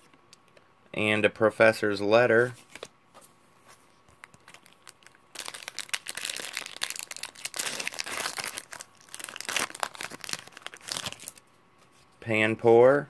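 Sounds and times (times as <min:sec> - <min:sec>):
foil wrapper crinkling and tearing: 0:04.2 - 0:11.4.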